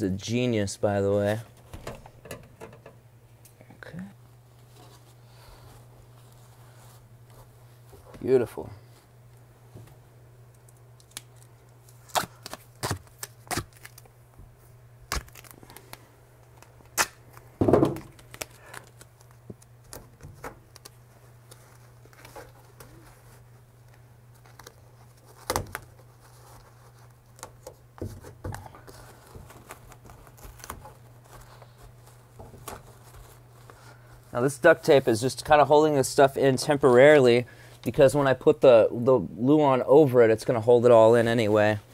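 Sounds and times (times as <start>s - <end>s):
steady low hum: 0.0s - 41.9s
duct tape ripping off roll: 11.0s - 14.1s, 15.1s - 16.0s, 16.6s - 19.4s
tape taps and crinkles: 15.1s - 22.9s.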